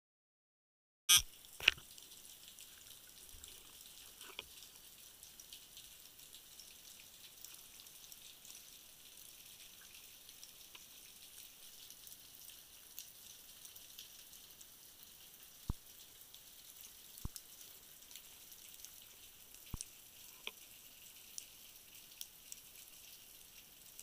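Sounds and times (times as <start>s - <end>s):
underwater hiss with crackling clicks: 1.1s - 11.8s, 15.4s - 24.0s.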